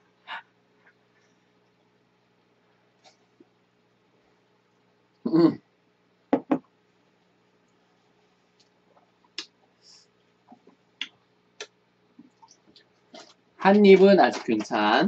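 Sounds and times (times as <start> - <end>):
glass knocking on wooden table: 6.3 - 6.7.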